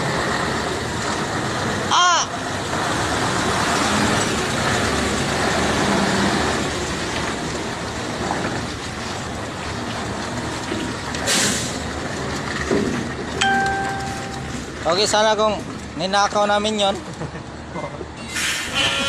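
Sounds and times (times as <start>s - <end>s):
truck rolling past: 0.0s - 19.0s
short hiss: 18.3s - 19.0s.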